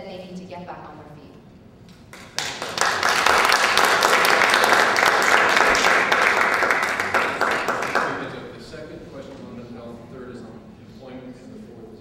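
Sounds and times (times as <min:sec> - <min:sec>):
audience applauding: 0:02.1 - 0:08.6.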